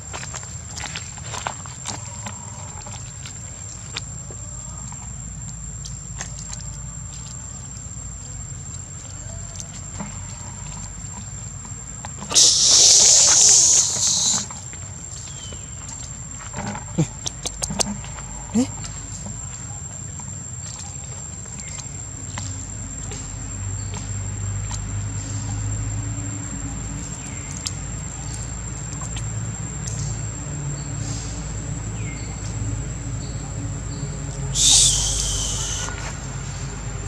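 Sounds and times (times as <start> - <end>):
short shrill sound: 12.3 - 14.5, 34.5 - 36.0
high-pitched whine: 34.5 - 36.1.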